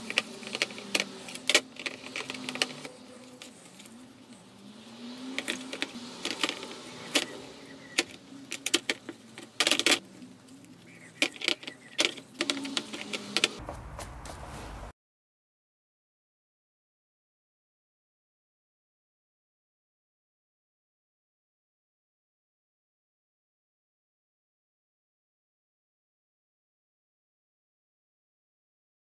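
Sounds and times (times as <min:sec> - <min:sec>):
brush applying paint stripper: 0:00.0 - 0:14.9.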